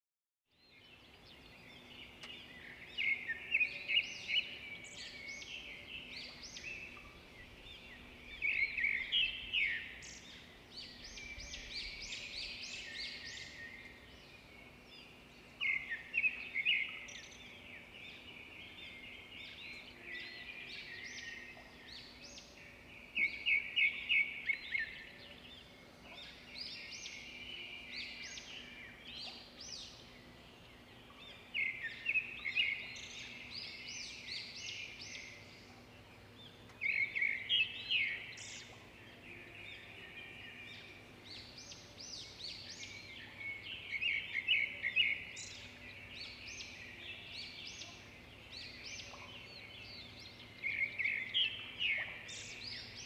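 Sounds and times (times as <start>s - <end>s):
small birds chirping: 0.5s - 53.0s.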